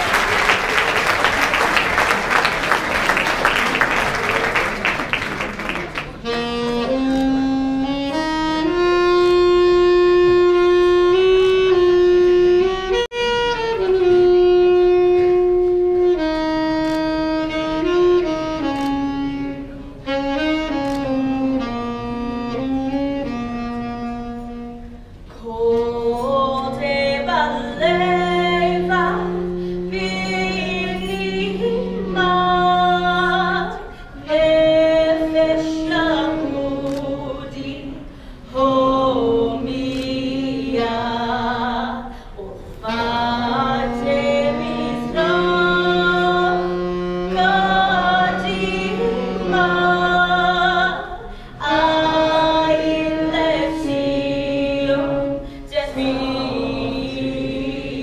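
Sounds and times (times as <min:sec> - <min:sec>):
woman singing an anthem: 0:25.3 - 0:42.2, 0:42.8 - 0:57.0.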